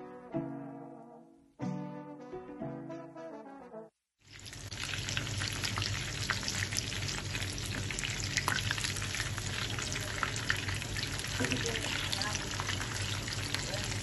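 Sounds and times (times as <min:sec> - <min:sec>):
chicken frying in hot oil: 0:04.2 - 0:14.0
oil popping and crackling: 0:04.2 - 0:14.0.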